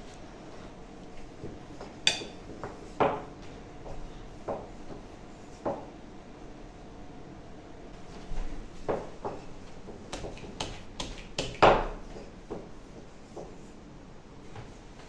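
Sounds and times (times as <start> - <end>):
spoon clinking on plate: 2.1 - 2.4
rolling pin knocking on board: 8.9 - 12.7.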